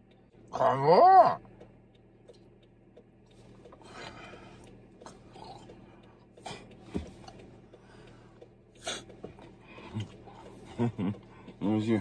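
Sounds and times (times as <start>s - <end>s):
person chewing: 3.3s - 7.6s.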